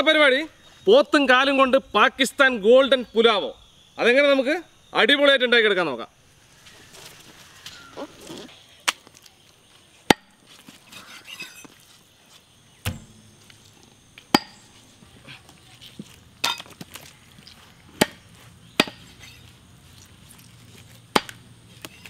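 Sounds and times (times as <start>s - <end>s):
cleaver chopping meat on wood: 18.0s - 19.1s, 21.1s - 22.0s.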